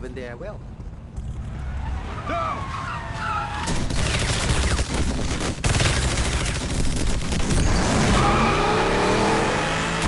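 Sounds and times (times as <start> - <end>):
rapid automatic gunfire: 3.7 - 7.9.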